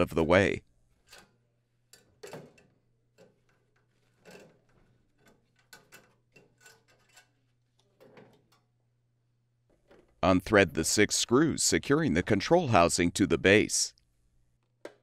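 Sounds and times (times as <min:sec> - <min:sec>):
metal clicks and clatter: 0:01.0 - 0:08.7.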